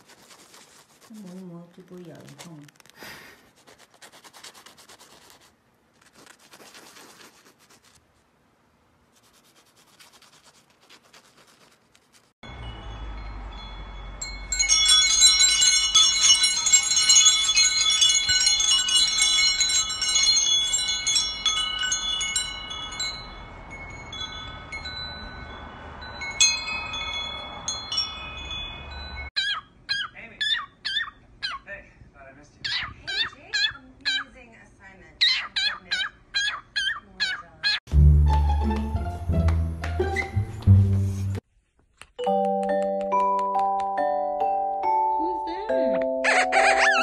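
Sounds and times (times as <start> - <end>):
faint scratching: 0.0 - 8.3, 9.1 - 12.4
small metal chimes jingling: 12.4 - 29.3.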